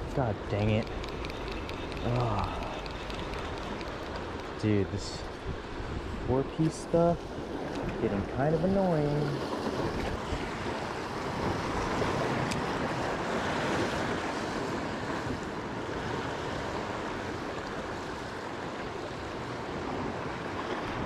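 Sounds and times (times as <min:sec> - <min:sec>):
wind buffeting microphone: 0:00.0 - 0:08.3
surf against rocky shore: 0:00.0 - 0:21.0.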